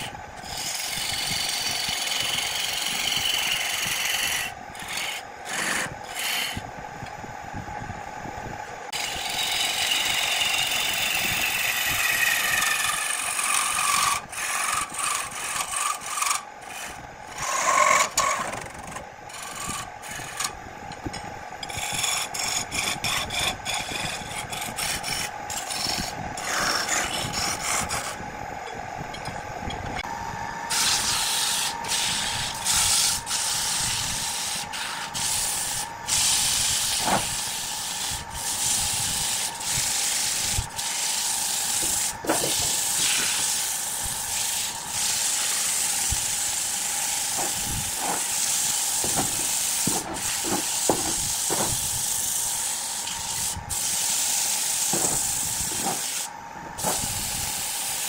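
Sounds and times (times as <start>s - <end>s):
gouge scraping wood on lathe: 0.0s - 6.6s, 8.9s - 20.5s, 21.7s - 28.2s, 30.7s - 46.4s, 47.1s - 52.3s
faint lathe hum: 0.0s - 58.0s.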